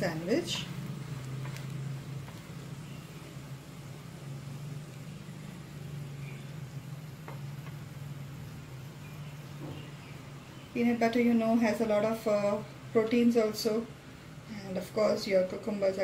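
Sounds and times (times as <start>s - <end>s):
sandwich sizzling in a pan: 0.1s - 9.5s.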